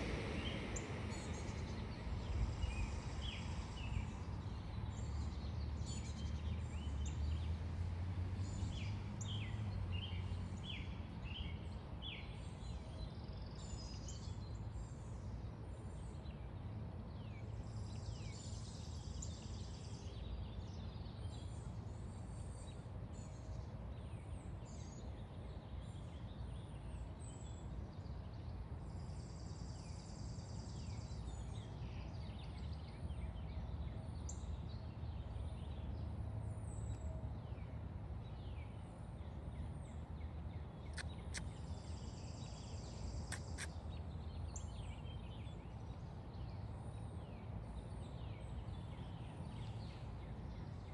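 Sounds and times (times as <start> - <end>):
steady low rumble: 0.0 - 5.4
small birds chirping: 0.0 - 7.6, 8.4 - 50.9.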